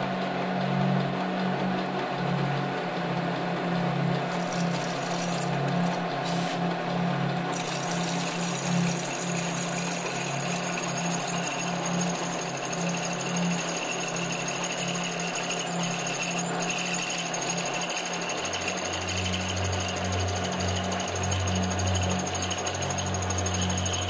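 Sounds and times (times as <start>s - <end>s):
machine hum: 2.1s - 24.0s
end mill cutting steel: 4.2s - 6.8s, 7.4s - 24.0s.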